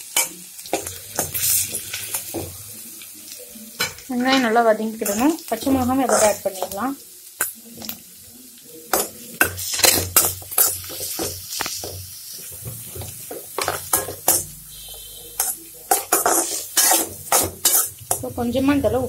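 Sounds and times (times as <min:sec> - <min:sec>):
spoon scraping a pan: 0:00.0 - 0:02.5, 0:03.8 - 0:06.8, 0:08.9 - 0:18.3
onions sizzling in oil: 0:00.0 - 0:19.0.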